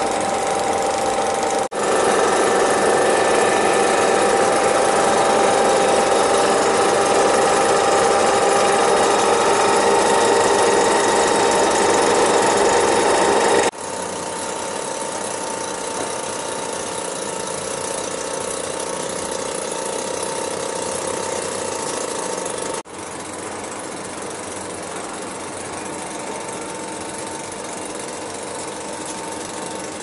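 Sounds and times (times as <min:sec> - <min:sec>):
locomotive mechanical drone: 0:00.0 - 0:22.8.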